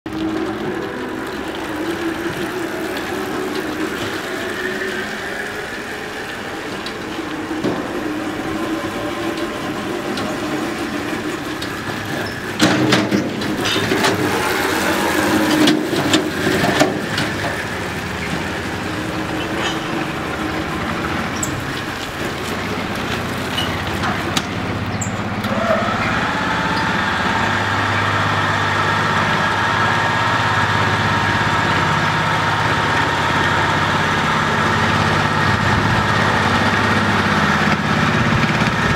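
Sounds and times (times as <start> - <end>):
dumper engine running: 0.0 - 38.9
clattering and knocks: 9.3 - 25.3.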